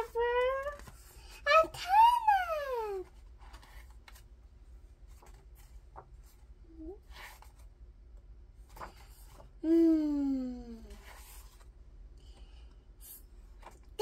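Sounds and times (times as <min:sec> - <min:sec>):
book pages turning: 0:00.0 - 0:01.4, 0:03.0 - 0:04.4, 0:05.0 - 0:09.6, 0:10.8 - 0:12.6, 0:13.5 - 0:14.0
child's voice: 0:00.0 - 0:03.1.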